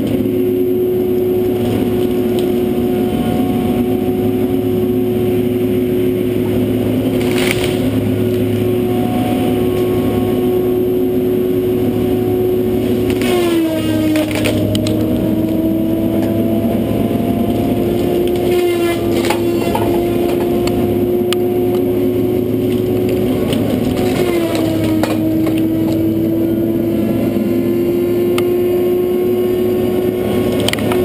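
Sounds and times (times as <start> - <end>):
forestry machine engine whine: 0.0 - 31.0
saw crunching through tree trunk: 12.8 - 15.6, 17.5 - 21.0, 22.6 - 26.0.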